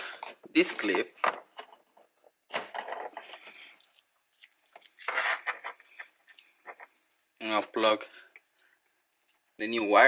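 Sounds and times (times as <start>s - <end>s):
plastic connector scraping: 2.8s - 7.3s.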